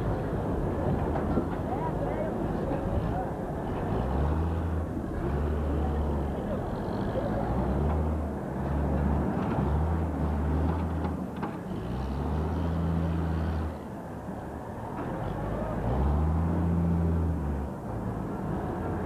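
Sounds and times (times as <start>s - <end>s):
street background noise: 0.0s - 19.0s
diesel engine revving: 3.7s - 11.1s, 15.3s - 19.0s.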